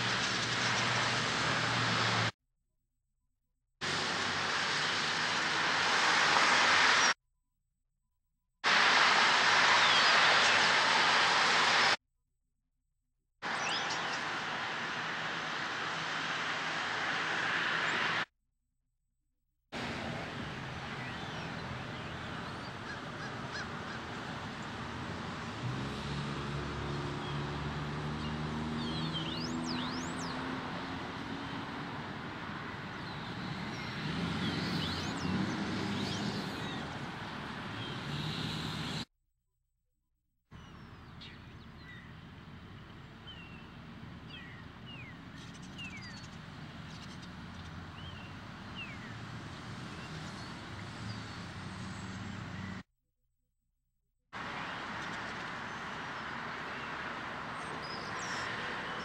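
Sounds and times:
road traffic noise: 0:00.0 - 0:02.4, 0:03.8 - 0:07.2, 0:08.6 - 0:12.0, 0:13.4 - 0:18.3, 0:19.8 - 0:39.1, 0:40.6 - 0:52.8, 0:54.4 - 0:59.0
birds chirping: 0:13.4 - 0:14.5, 0:27.2 - 0:30.6, 0:32.8 - 0:36.9, 0:40.6 - 0:49.2
vehicle engine passing: 0:24.8 - 0:39.0.

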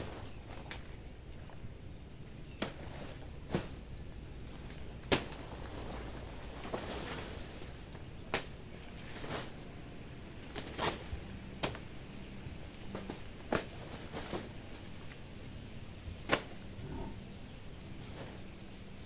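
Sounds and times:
banana plant cracking and snapping: 0:04.4 - 0:05.5, 0:08.3 - 0:08.6, 0:10.5 - 0:11.8, 0:12.9 - 0:14.9, 0:16.2 - 0:16.6.

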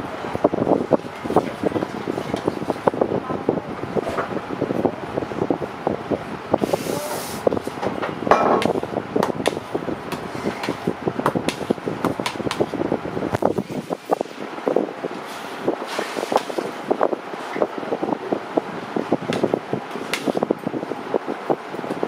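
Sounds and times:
steady background hum: 0:00.0 - 0:22.0
clicks and knocks of work clatter: 0:07.8 - 0:12.7.

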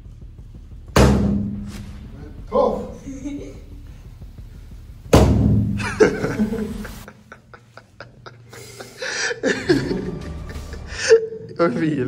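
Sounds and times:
man laughing: 0:03.0 - 0:03.8, 0:05.8 - 0:11.7.

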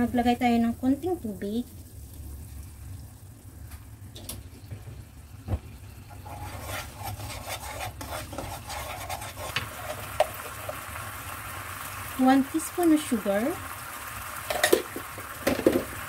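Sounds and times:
low sizzle: 0:00.0 - 0:16.0
spatula scraping and sloshing sauce: 0:06.1 - 0:10.8.

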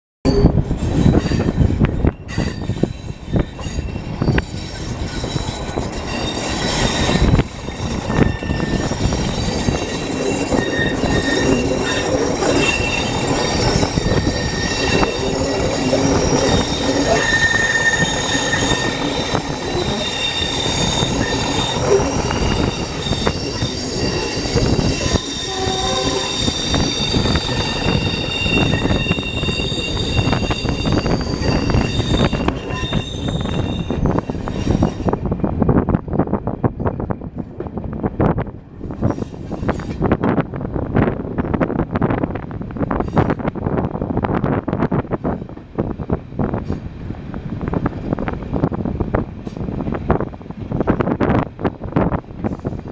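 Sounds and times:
train wheels squealing: 0:00.3 - 0:35.2, 0:38.8 - 0:40.1
diesel locomotive: 0:00.3 - 0:52.9
wheels rumbling on track: 0:00.3 - 0:52.9.

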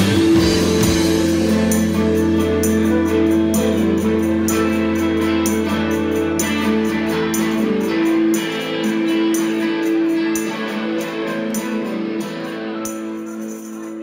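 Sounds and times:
high percussion hits: 0:00.0 - 0:11.8
indie band playing: 0:00.0 - 0:14.0.

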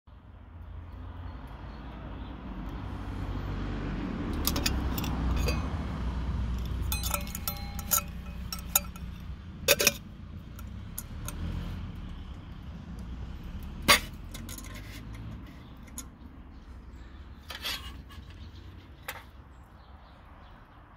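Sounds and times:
metal kettle lid clinking: 0:04.4 - 0:05.8, 0:06.6 - 0:10.0.

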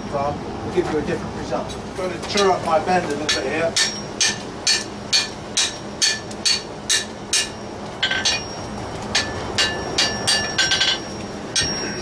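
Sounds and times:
hammer striking hot steel on anvil: 0:03.2 - 0:12.0
anvil ringing: 0:03.3 - 0:12.0.

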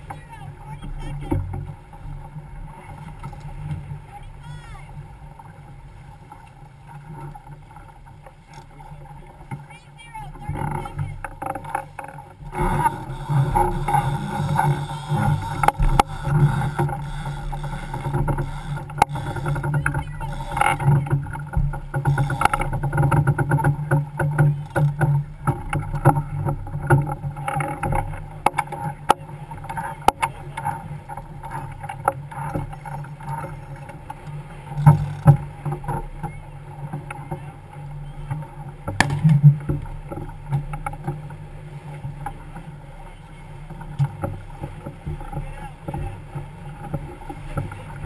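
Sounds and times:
water rushing along hull: 0:00.0 - 0:48.0
wind on microphone: 0:12.4 - 0:25.7
sharp crack: 0:39.0 - 0:39.4.

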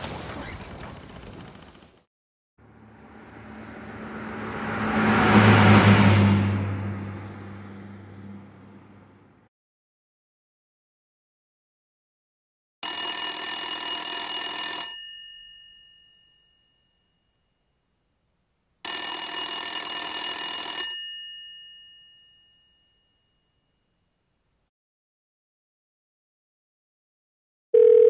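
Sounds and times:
old telephone bell ringing: 0:12.8 - 0:17.4, 0:18.9 - 0:23.6.

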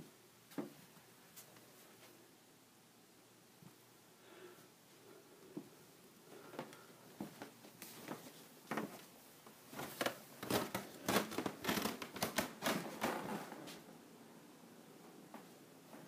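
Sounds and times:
footsteps: 0:06.4 - 0:14.0, 0:15.3 - 0:16.0.

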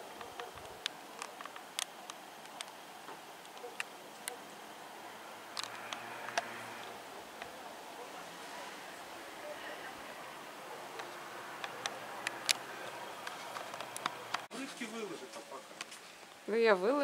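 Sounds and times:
sharp clicks and ticks: 0:05.6 - 0:06.5, 0:11.0 - 0:14.5.

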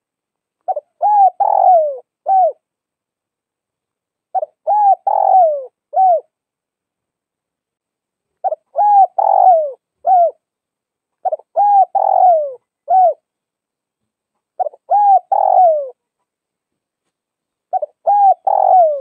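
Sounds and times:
dove cooing: 0:00.6 - 0:02.7, 0:04.3 - 0:06.4, 0:08.4 - 0:10.4, 0:11.2 - 0:13.3, 0:14.6 - 0:16.0, 0:17.7 - 0:19.0.

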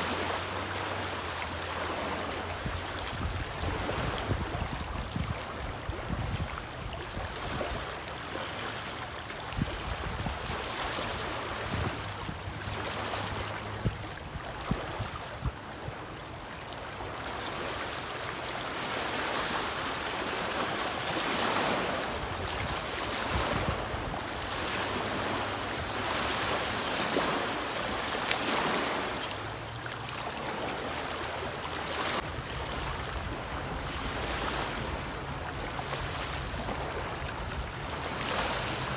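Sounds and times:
waves lapping on rocky shore: 0:00.0 - 0:38.9
wind on microphone: 0:02.5 - 0:08.1, 0:09.0 - 0:16.2, 0:21.1 - 0:29.4.

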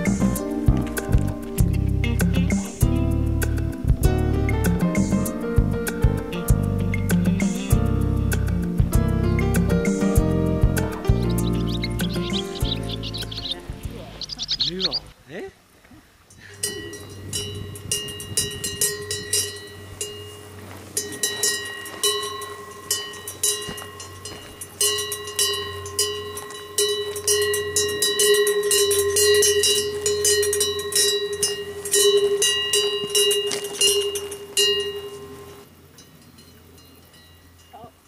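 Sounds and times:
cowbell clanking: 0:11.1 - 0:15.0, 0:16.4 - 0:38.0.

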